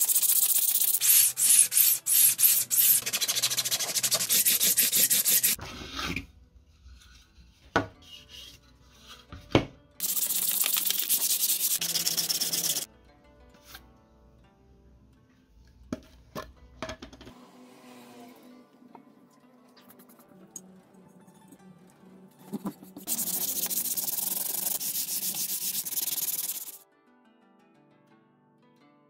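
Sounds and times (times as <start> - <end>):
sandpaper rubbing plastic part: 0.0 - 5.6, 10.0 - 12.9, 23.0 - 26.8.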